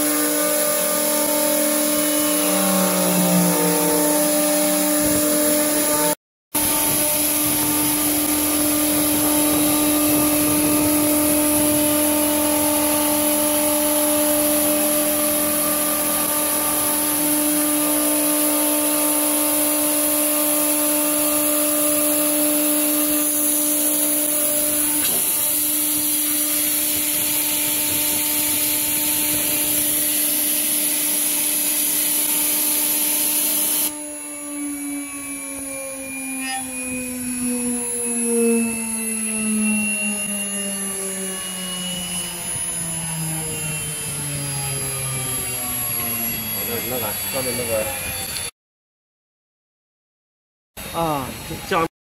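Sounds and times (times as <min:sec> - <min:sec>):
bit cutting wood: 0:00.0 - 0:34.1
router spindle whining: 0:00.0 - 0:48.5.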